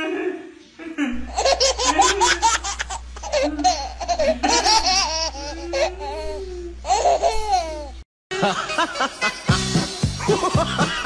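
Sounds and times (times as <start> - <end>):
steady low hum: 0.1 - 8.9
man and woman laughing: 1.1 - 6.1, 8.3 - 11.0.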